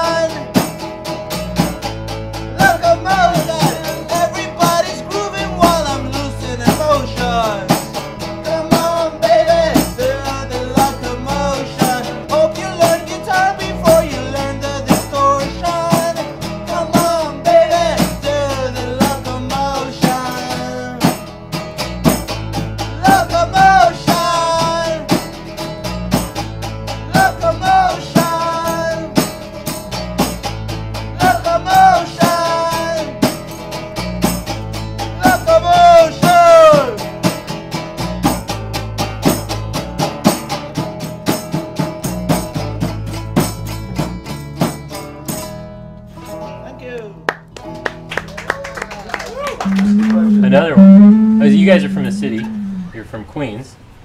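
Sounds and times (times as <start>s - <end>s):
strummed acoustic guitar: 0.0s - 48.3s, 49.6s - 54.0s
electric bass: 0.0s - 54.0s
person singing: 2.6s - 7.7s, 8.5s - 21.0s, 23.0s - 25.1s, 27.1s - 29.1s, 31.2s - 33.2s, 49.6s - 53.0s.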